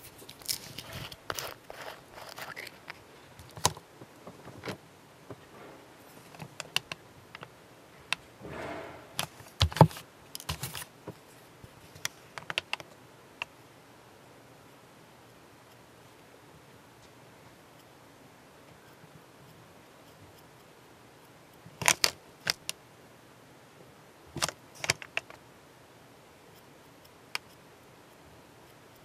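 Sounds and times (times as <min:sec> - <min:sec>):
small clicks and taps: 0:06.3 - 0:07.5, 0:12.0 - 0:13.5
louder knock: 0:08.4 - 0:09.2.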